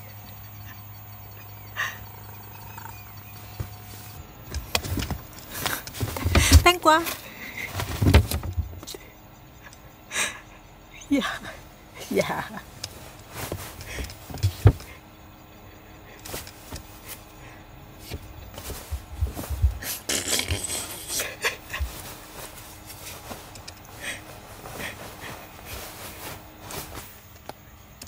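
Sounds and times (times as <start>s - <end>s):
rustling on mattress: 3.6s - 8.8s, 12.3s - 27.3s
cat thumping on mattress: 6.0s - 6.7s, 7.7s - 8.8s, 14.3s - 15.0s.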